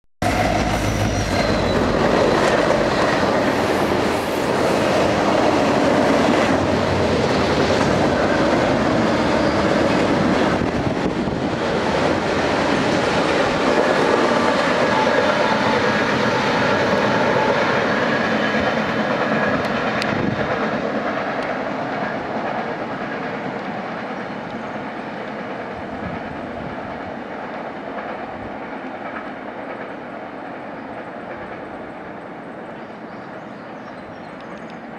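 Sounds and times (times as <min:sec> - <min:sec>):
diesel locomotive rumble: 0:00.2 - 0:23.1
train wheels on rails: 0:00.2 - 0:34.9.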